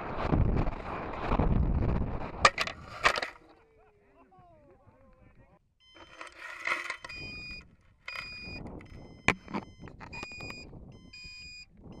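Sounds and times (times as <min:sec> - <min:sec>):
two-pitch electronic beeps: 0:05.8 - 0:12.0.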